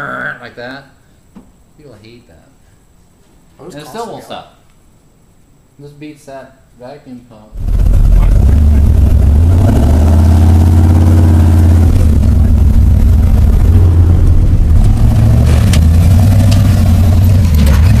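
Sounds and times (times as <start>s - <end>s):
vehicle engine revving: 7.6s - 18.0s.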